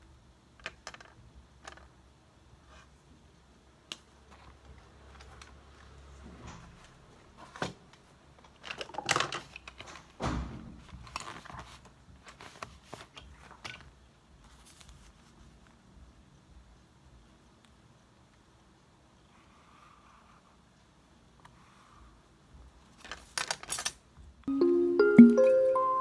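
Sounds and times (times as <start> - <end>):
light paper sounds: 14.4 - 15.8.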